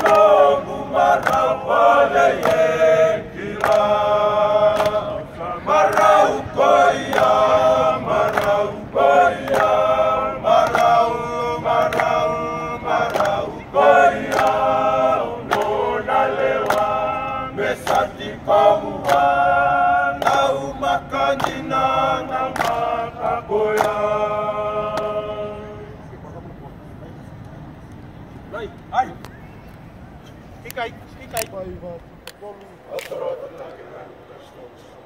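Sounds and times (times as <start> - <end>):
men singing in harmony: 0.0 - 26.0.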